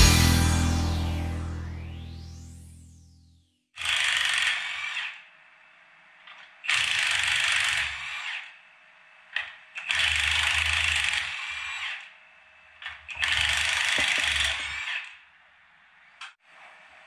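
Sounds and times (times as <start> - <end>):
impact wrench hammering: 13.8 - 14.6.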